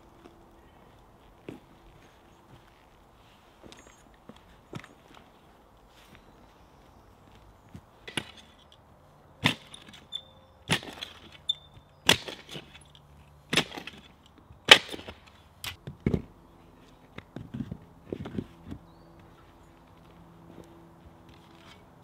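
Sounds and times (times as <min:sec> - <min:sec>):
hand tool striking stones: 0:08.0 - 0:08.7, 0:10.7 - 0:11.4, 0:12.0 - 0:12.9, 0:13.5 - 0:15.8.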